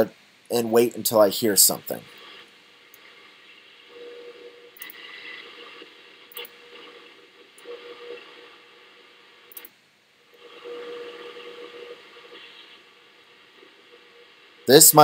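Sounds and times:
radio static and hiss: 0:00.0 - 0:09.6, 0:10.4 - 0:15.0
faint steady tone: 0:00.0 - 0:15.0
sharp tuning clicks: 0:04.8 - 0:05.5, 0:09.5 - 0:09.8.

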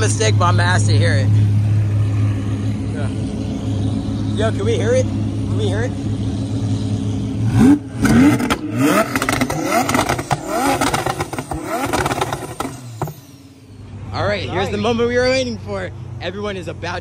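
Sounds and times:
exhaust cracks: 0:00.0 - 0:13.5
car engine revving: 0:00.0 - 0:16.8.

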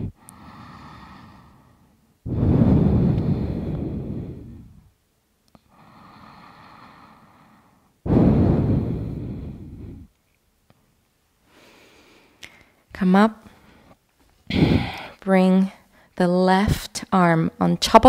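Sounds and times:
person breathing deeply: 0:00.0 - 0:04.9, 0:05.6 - 0:10.1, 0:11.4 - 0:12.8, 0:13.5 - 0:15.2.

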